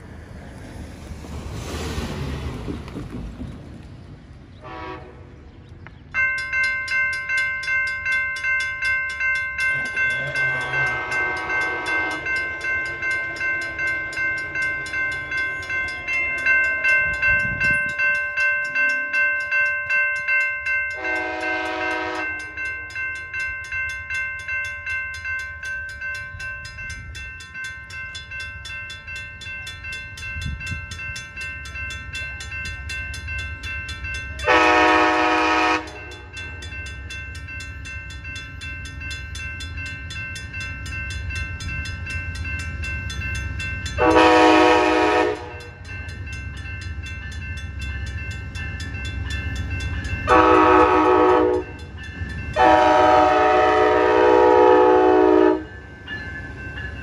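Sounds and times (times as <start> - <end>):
railroad crossing bell ringing: 4.1 - 57.0
train horn blast: 4.6 - 5.4, 10.2 - 14.2, 21.0 - 22.4, 34.4 - 36.3, 44.0 - 45.7, 50.3 - 51.7, 52.6 - 55.7.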